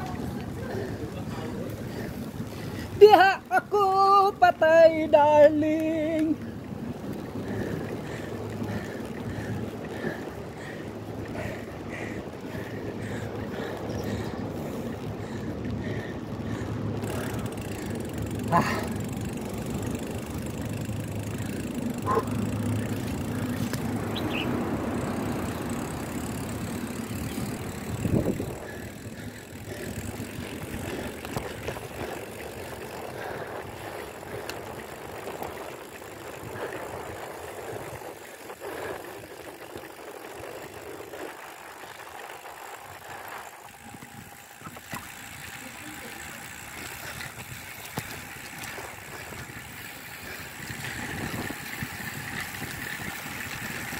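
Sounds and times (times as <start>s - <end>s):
wind on microphone: 27.3s - 28.8s, 50.6s - 53.8s.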